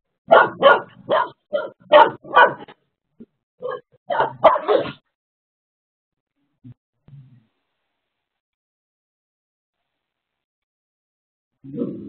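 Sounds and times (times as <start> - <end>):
dog barking and yipping: 0.3 - 2.7, 3.6 - 5.0.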